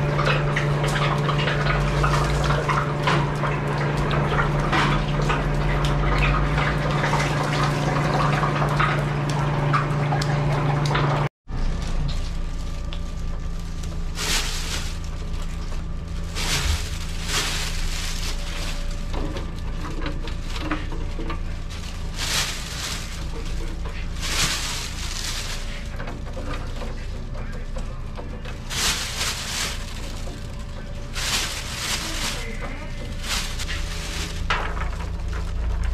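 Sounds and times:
low machine hum: 0.0s - 35.9s
rustling and scraping on trays: 11.6s - 35.9s.

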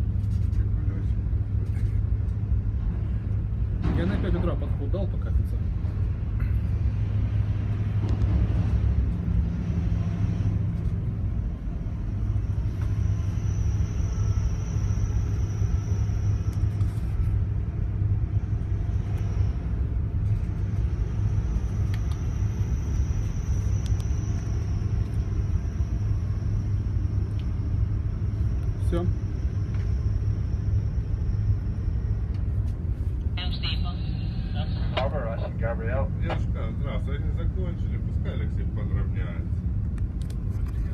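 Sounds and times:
low machinery rumble and hum: 0.0s - 40.9s
faint high whine: 9.3s - 39.6s.

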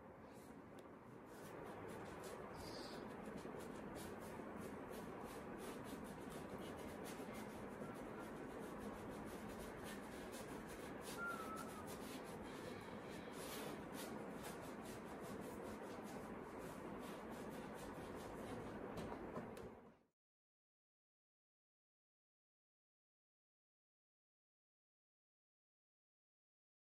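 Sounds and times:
paintbrush rubbing on canvas: 1.2s - 19.5s.

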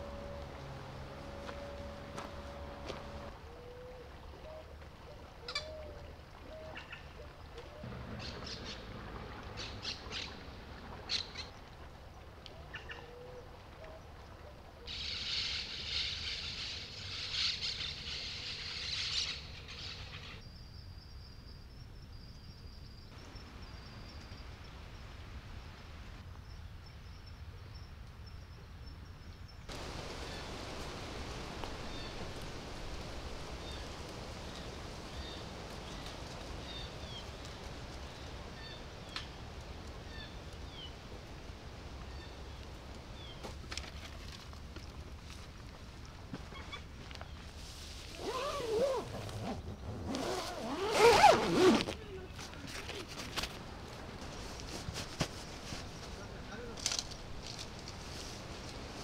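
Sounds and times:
low steady rumble: 0.0s - 3.8s.

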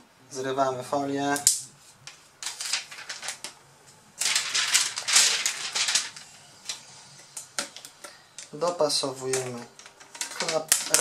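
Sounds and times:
plastic film peeling: 1.4s - 3.6s, 4.2s - 11.0s.

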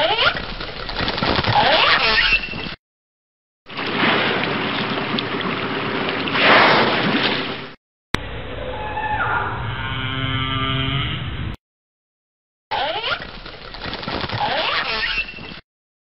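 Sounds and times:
whale calls: 8.4s - 11.2s.

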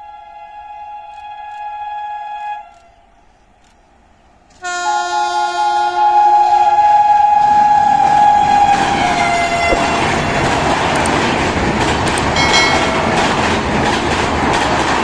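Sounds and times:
two-tone locomotive horn: 0.0s - 2.7s, 4.6s - 9.5s
train rumble: 3.9s - 15.0s.

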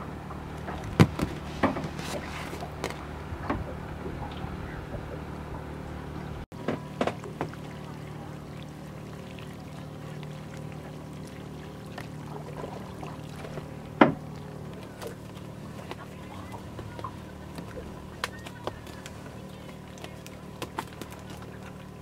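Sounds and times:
boat engine running: 0.0s - 22.0s.

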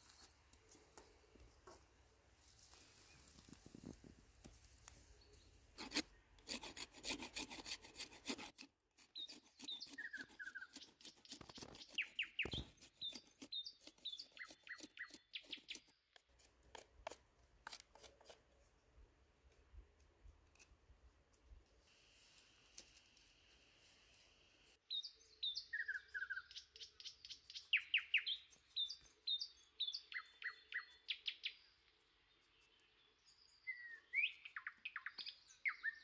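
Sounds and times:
knife scraping bark off stick: 5.8s - 18.5s
birds chirping: 9.2s - 16.0s.

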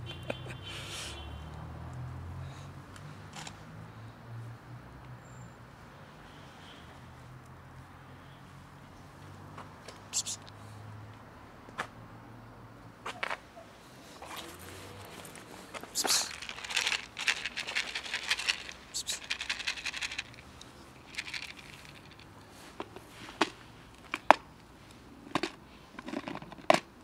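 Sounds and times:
plastic packaging crinkling: 14.3s - 20.4s, 21.0s - 22.2s.

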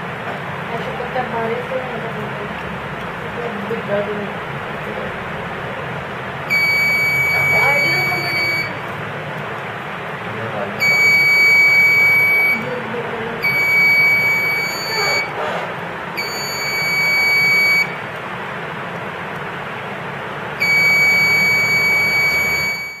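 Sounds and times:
alarm buzzer beeping: 6.5s - 8.8s, 10.8s - 12.7s, 13.4s - 15.4s, 16.2s - 18.0s, 20.6s - 23.0s.

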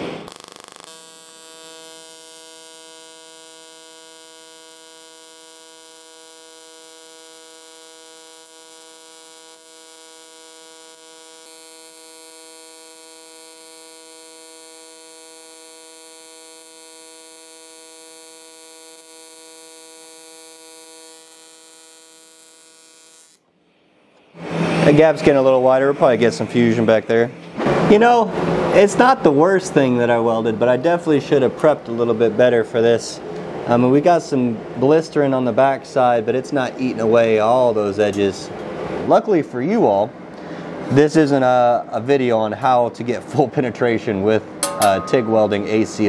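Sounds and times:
welding arc buzzing: 0.0s - 23.5s.

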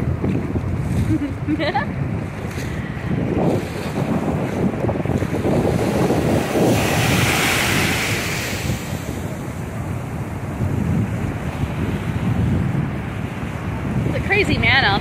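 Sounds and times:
ocean surf washing in: 0.0s - 15.0s
wind buffeting microphone: 0.0s - 15.0s.

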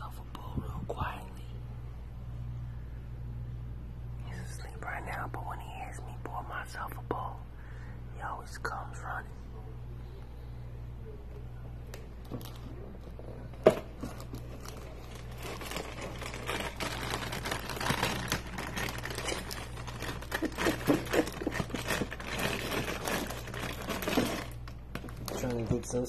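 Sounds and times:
plastic bag crinkling: 11.9s - 26.0s.

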